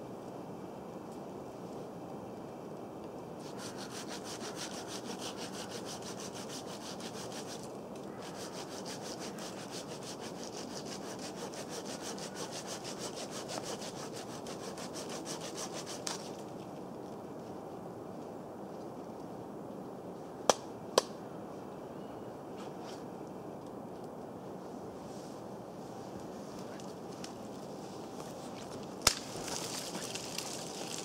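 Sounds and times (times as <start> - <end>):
hand saw cutting branch: 3.4 - 16.4.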